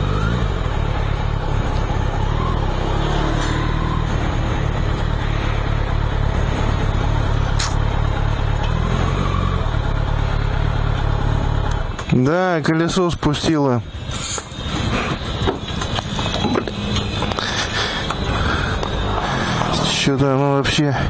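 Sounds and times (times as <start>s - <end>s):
motorbike engine rumble: 0.0s - 21.0s
sharp click: 7.6s - 7.8s.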